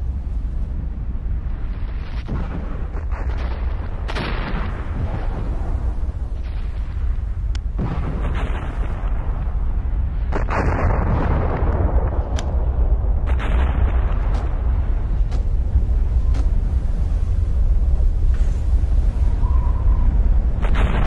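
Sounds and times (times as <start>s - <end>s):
deep volcanic rumble: 0.0s - 21.0s
volcanic blasts: 0.0s - 21.0s.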